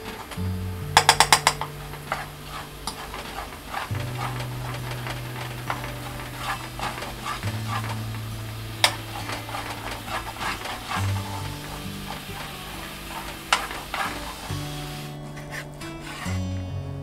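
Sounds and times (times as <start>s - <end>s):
sauce bubbling and sizzling: 0.1s - 15.2s
spoon clacking against pan: 1.0s - 7.9s
spoon scraping frying pan: 1.0s - 16.3s.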